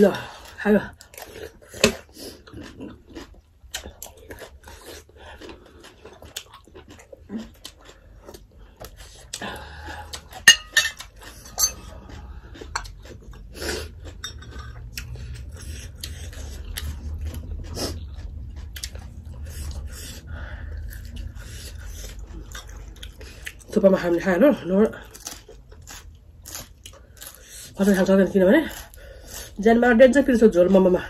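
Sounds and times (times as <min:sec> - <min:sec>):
chewing: 0:00.2 - 0:23.8, 0:25.0 - 0:29.6
dishes and spoons clinking: 0:10.4 - 0:11.8, 0:14.2 - 0:14.8.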